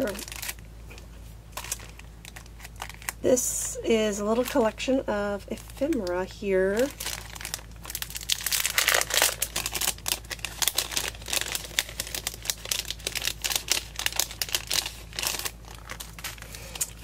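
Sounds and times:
cellophane bag crinkling: 0:00.0 - 0:00.6, 0:01.5 - 0:03.3, 0:04.1 - 0:17.0.

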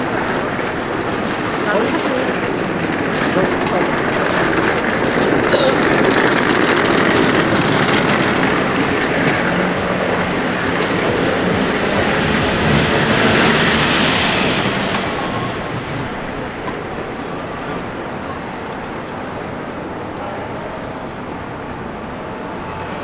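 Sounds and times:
loud vehicle noise: 0:00.0 - 0:23.0.

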